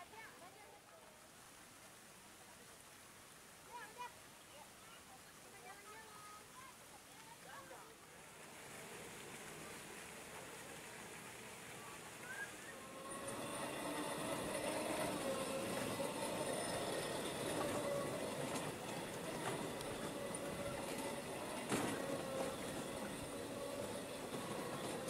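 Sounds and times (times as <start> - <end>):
motor humming: 8.8 - 25.0.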